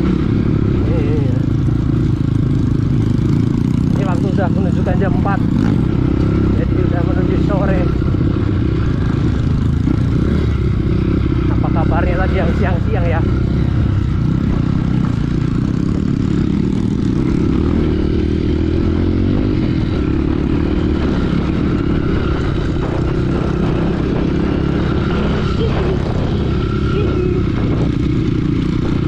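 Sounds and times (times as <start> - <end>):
motorcycle engine running: 0.0 - 29.0.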